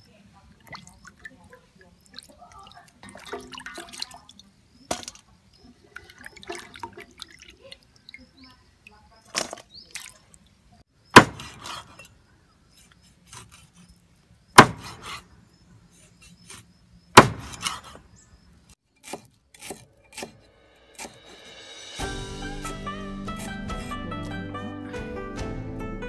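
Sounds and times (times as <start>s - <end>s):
cleaver chopping on wooden block: 11.2s - 12.0s, 14.6s - 15.2s, 17.2s - 18.0s, 19.0s - 20.4s, 21.0s - 21.4s
plucked string music: 22.0s - 26.0s.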